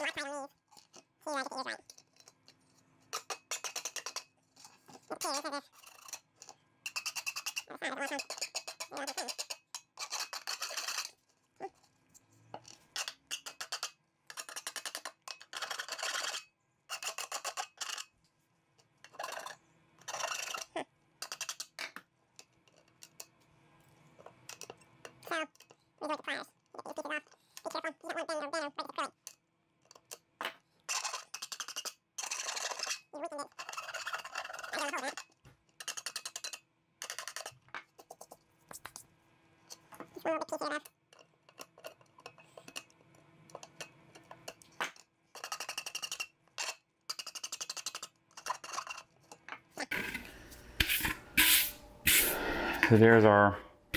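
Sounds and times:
rasping scraping on glass globe: 3.2s - 11.2s, 13.0s - 18.1s, 19.1s - 21.8s, 30.9s - 38.3s, 45.4s - 49.1s.

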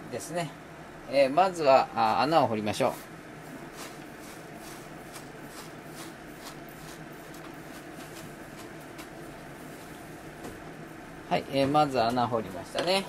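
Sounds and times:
steady background hum: 0.0s - 13.0s
spoon scraping ground coffee: 3.7s - 8.7s.

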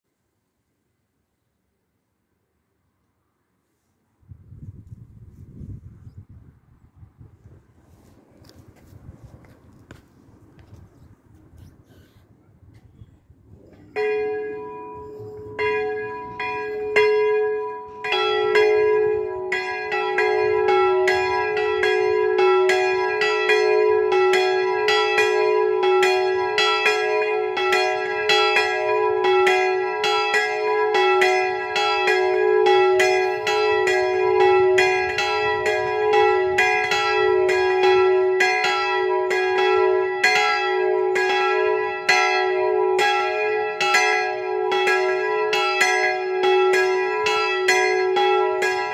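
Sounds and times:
church bells ringing: 13.6s - 48.9s.

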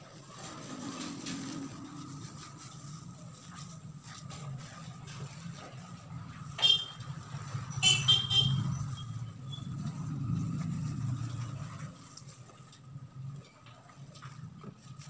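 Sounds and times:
vehicle driving past: 4.8s - 12.4s.

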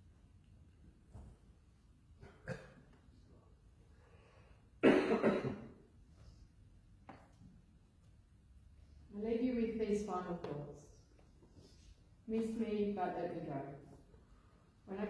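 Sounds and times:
person coughing: 2.2s - 3.0s, 4.8s - 5.8s.

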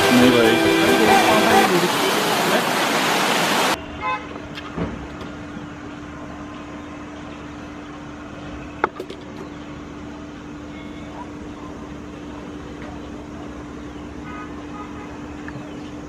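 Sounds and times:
rushing water from waterfall: 0.0s - 3.8s
distant traffic hum: 0.0s - 16.0s
car horn toot: 3.9s - 4.3s.

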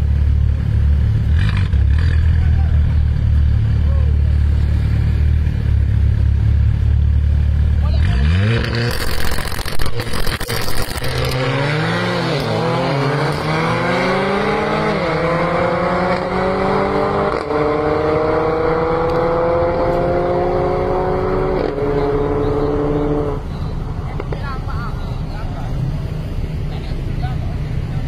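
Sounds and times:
car engines accelerating: 0.0s - 28.0s.

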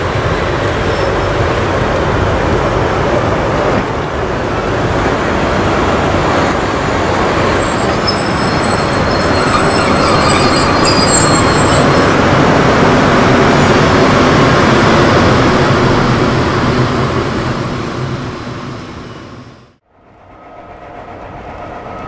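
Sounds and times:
train wheels rumbling: 0.0s - 22.0s
high wheel squeal: 7.2s - 12.8s.

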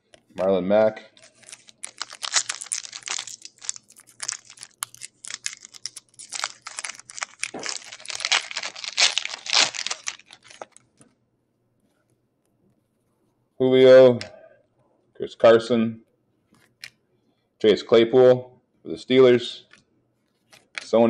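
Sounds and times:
foil wrapper crinkling and tearing: 1.1s - 11.0s.

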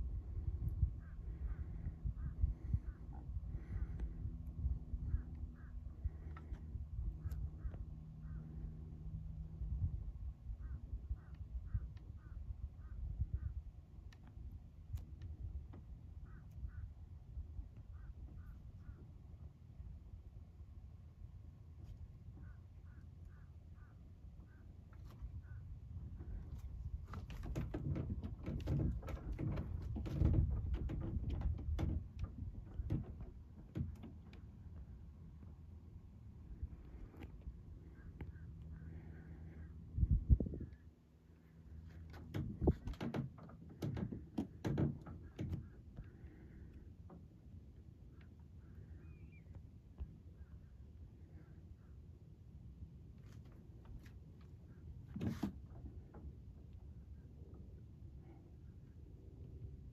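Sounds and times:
low rumble: 0.0s - 27.2s
wind rumble on microphone: 0.0s - 59.9s
knocks and clatter: 27.1s - 34.5s, 42.0s - 45.8s.

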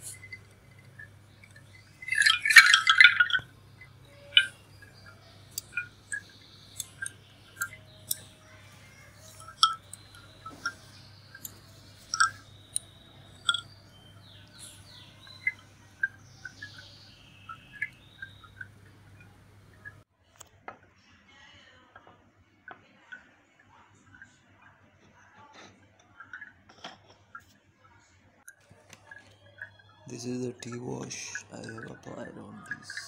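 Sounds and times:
clattering bright clinks: 0.0s - 19.8s.

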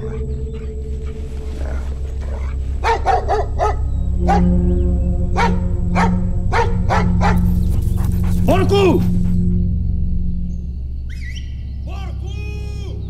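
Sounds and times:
low film score drone: 0.0s - 13.0s
dog barking: 2.4s - 4.5s, 5.4s - 9.4s.

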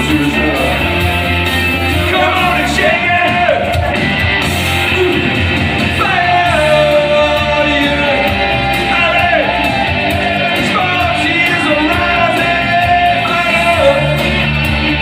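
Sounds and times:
person singing rock into microphone: 0.0s - 15.0s
recorded backing track: 0.0s - 15.0s.

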